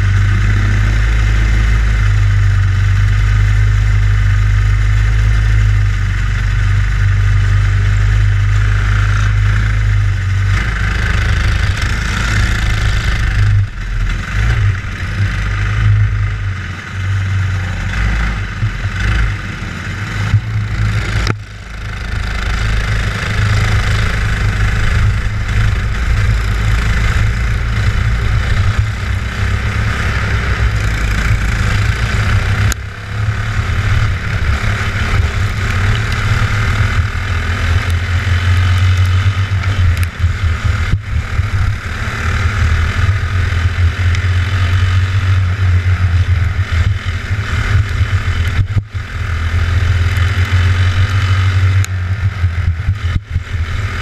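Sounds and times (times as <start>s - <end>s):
kart engine running hard: 0.0s - 54.0s
other kart engines: 0.0s - 54.0s.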